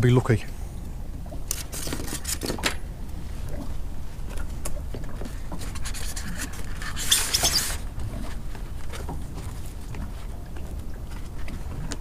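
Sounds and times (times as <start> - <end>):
rustling scrape: 1.5 - 2.6, 5.3 - 8.4
steady low rumble: 2.8 - 5.8.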